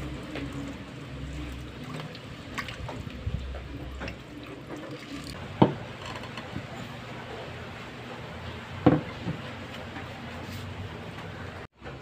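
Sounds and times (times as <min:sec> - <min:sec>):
sharp water splashes: 0:00.0 - 0:03.3
water trickling in a pond: 0:00.0 - 0:06.6.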